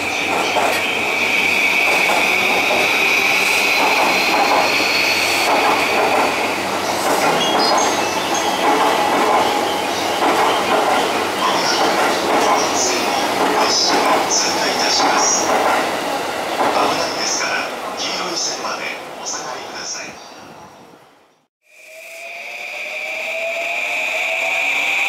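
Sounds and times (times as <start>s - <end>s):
high train wheel squeal: 0.0s - 15.5s
train rumbling over rails: 0.0s - 25.0s.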